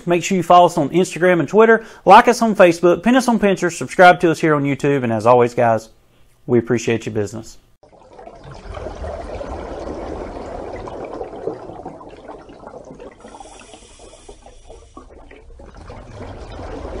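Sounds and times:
rushing water: 7.8 - 17.0.

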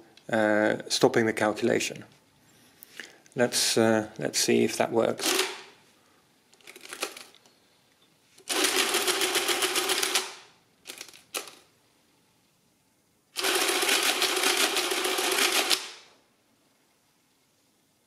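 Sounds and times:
mechanical calculator ticking clatter: 8.5 - 11.6, 13.4 - 15.9.

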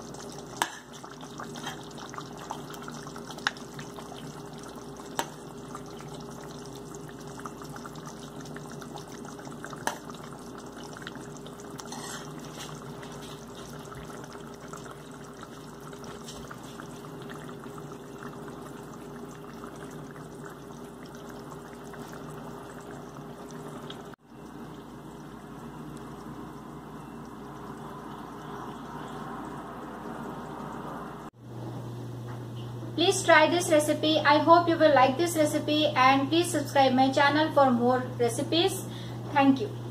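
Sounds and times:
curry bubbling in a pot: 0.0 - 31.4
low even hum: 0.0 - 39.9.

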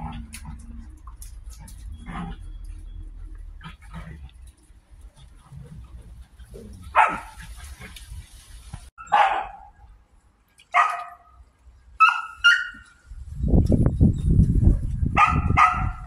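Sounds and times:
dog barking: 6.9 - 7.5, 9.0 - 9.8, 10.7 - 11.3, 12.0 - 12.8, 15.2 - 16.0.

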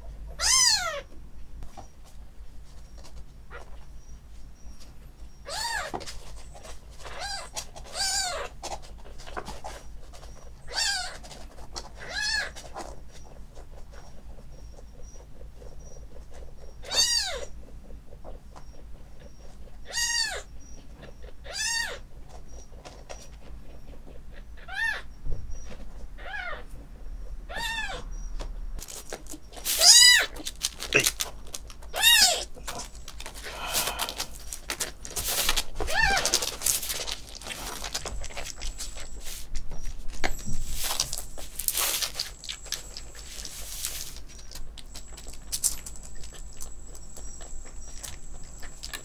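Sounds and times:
kitten mewing: 16.8 - 17.5, 19.9 - 22.0, 27.5 - 28.1, 32.0 - 34.4, 35.8 - 36.6.

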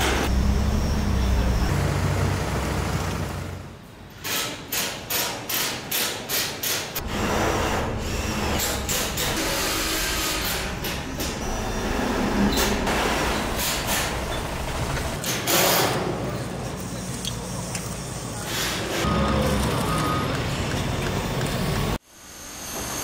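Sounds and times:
machinery engine rumble: 0.0 - 4.0, 7.0 - 15.2
rhythmic mechanical bursts: 7.0 - 15.3.

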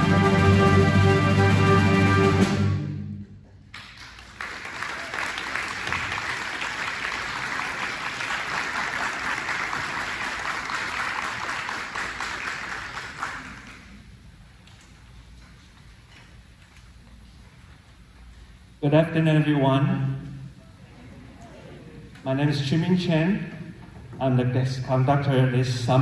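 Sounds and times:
audience applauding: 3.7 - 14.2.

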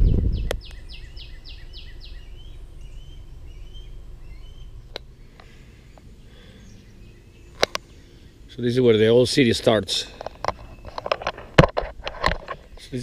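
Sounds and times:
wind rumble on microphone: 0.0 - 1.0
songbird whistling: 0.0 - 8.5
bird chirps: 0.0 - 8.8, 10.5 - 11.3
outdoor background noise: 0.0 - 13.0.

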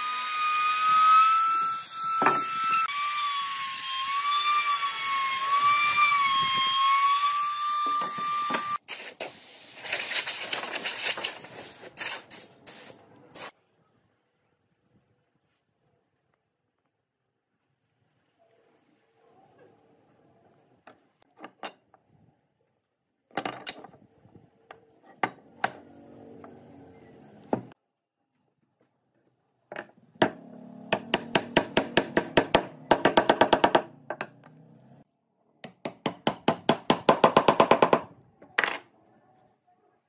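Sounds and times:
hammer striking wood: 2.2 - 2.6, 29.8 - 34.4, 35.6 - 38.1.

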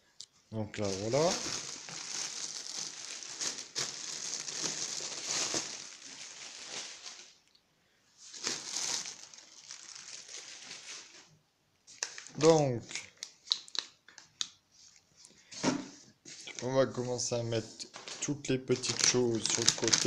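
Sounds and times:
plastic packing crinkling: 0.8 - 7.5, 8.3 - 11.3, 17.9 - 20.0.

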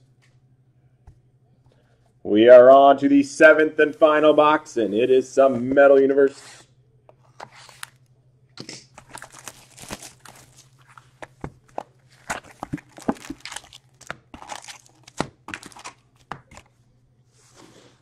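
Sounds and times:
foil packs crinkling: 8.9 - 16.6.

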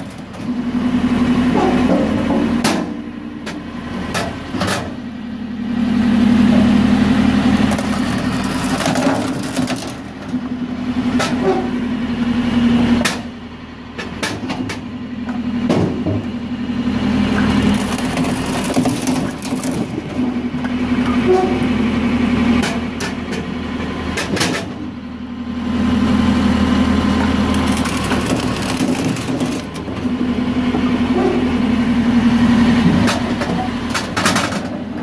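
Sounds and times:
machine hum: 0.0 - 24.2, 24.8 - 35.0
wood cracking and splitting: 7.6 - 10.4, 17.6 - 20.3, 27.3 - 30.0.

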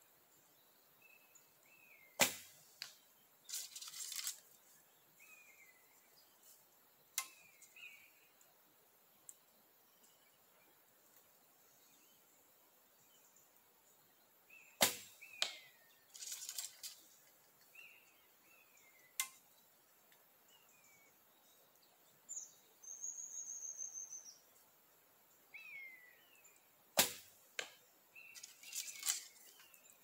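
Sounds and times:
small birds chirping: 0.0 - 30.0
arrow striking and clattering: 2.2 - 4.4, 14.8 - 17.0, 27.0 - 27.8
bowstring release: 19.2 - 19.4.

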